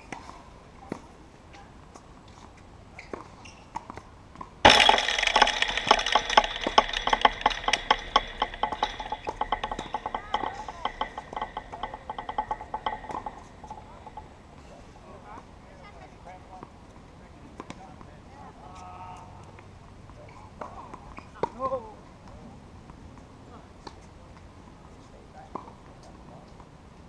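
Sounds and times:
loud knock: 4.7 - 14.3.

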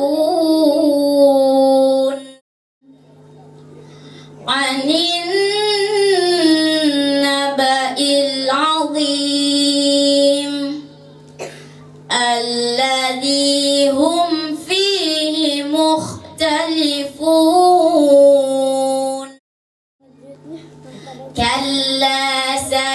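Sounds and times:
boy chanting into a microphone: 4.4 - 11.0, 12.1 - 19.4, 20.1 - 22.9.

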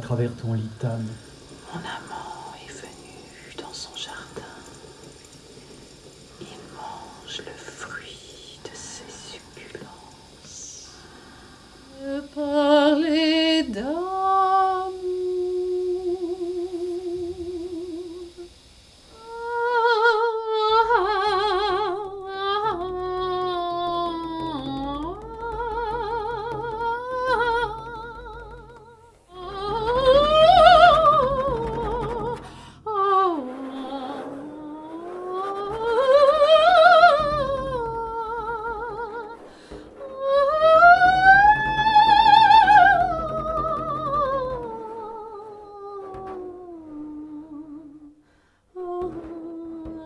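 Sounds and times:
low steady drone: 0.0 - 45.4
woman singing operatically: 11.9 - 18.5, 19.2 - 48.2, 48.8 - 50.0.

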